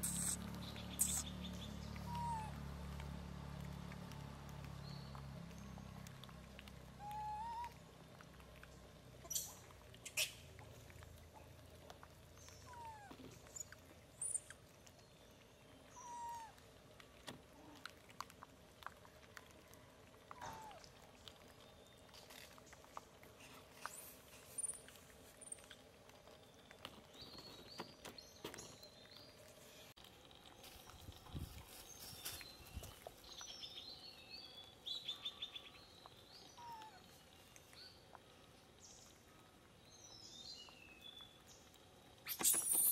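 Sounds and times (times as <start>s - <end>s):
monkeys squeaky calls: 0.0s - 0.4s, 1.0s - 1.3s, 2.1s - 2.5s.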